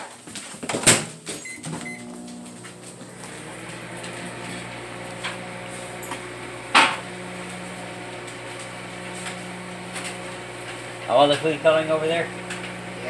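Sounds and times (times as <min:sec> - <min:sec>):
microwave oven humming: 0:01.4 - 0:13.0.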